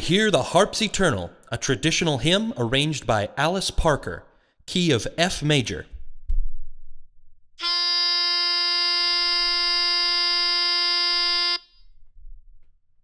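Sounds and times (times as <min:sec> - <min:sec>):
buzzy held reference note: 0:07.6 - 0:11.6.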